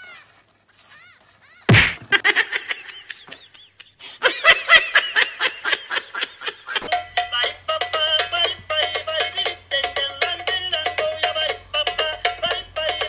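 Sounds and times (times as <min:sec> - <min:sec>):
person laughing: 0:01.7 - 0:06.9.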